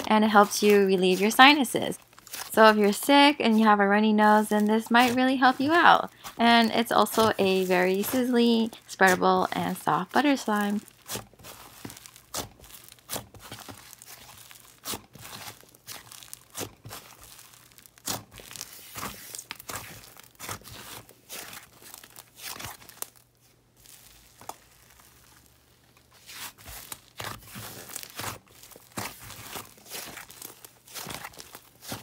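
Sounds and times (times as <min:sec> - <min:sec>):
slime crackling and popping: 0:00.0 - 0:32.0.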